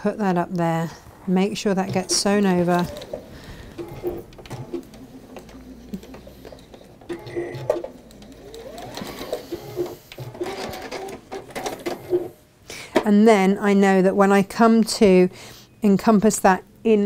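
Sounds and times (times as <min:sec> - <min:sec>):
sewing machine stitching: 0:01.7 - 0:12.4.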